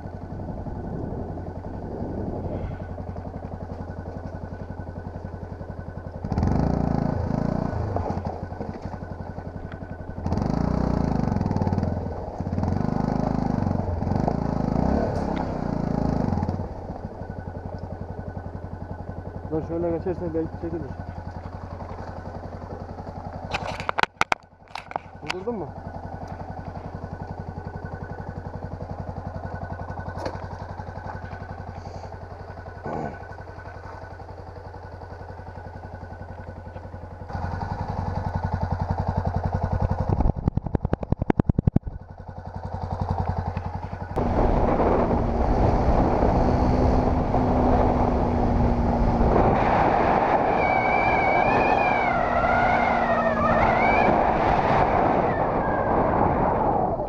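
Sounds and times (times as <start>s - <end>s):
motorcycle engine idling: 0.0s - 49.7s
motorcycle riding on gravel road: 0.0s - 57.0s
motorcycle throttle blips: 0.0s - 57.0s
wind and road noise: 0.0s - 57.0s.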